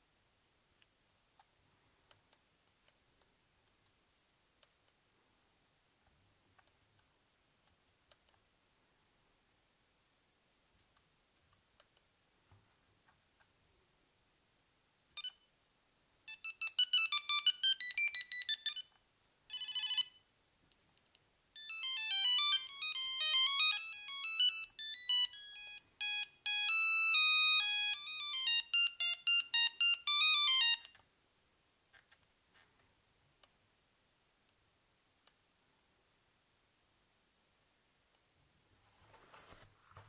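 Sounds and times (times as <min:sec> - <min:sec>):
mobile phone ringtone beeping melody: 0:16.3 - 0:18.9, 0:19.5 - 0:30.9.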